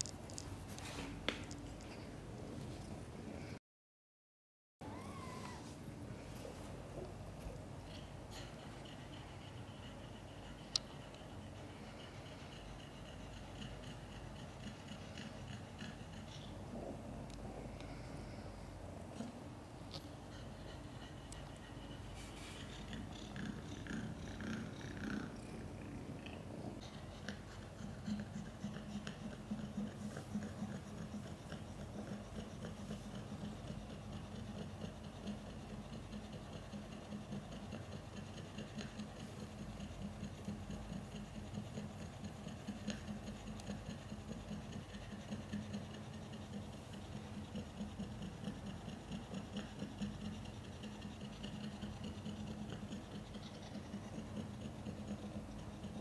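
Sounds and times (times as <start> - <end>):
cat purring: 11.3 - 56.0.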